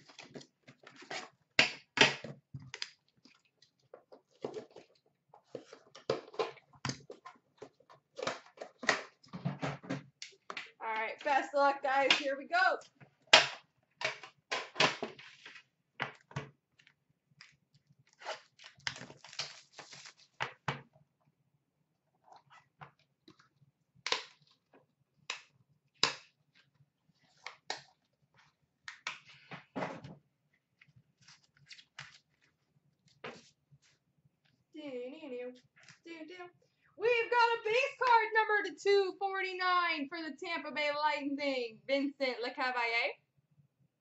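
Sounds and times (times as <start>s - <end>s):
cardboard and plastic packaging rustles: 18.0s - 20.6s, 30.8s - 34.0s.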